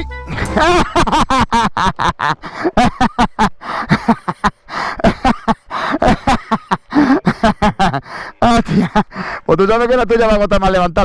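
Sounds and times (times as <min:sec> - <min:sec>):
man laughing: 0:00.0 - 0:09.3.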